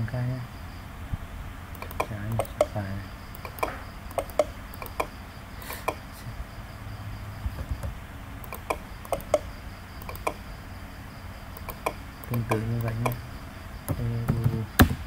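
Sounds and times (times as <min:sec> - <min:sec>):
computer mouse buttons clicking: 0:01.7 - 0:06.0, 0:07.6 - 0:10.4, 0:11.6 - 0:13.2.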